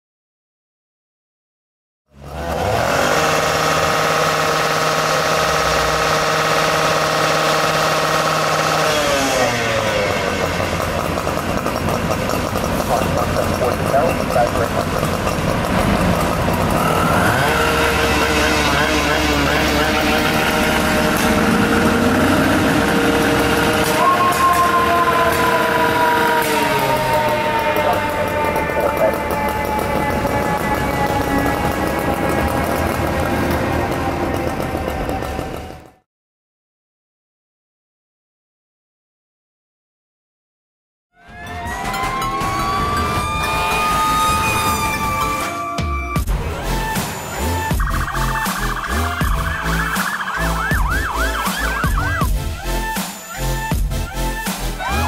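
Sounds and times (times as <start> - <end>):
fire engine diesel engine running: 2.2 - 36.0, 41.3 - 55.0
siren sliding down in pitch: 16.6 - 34.2, 41.1 - 55.0.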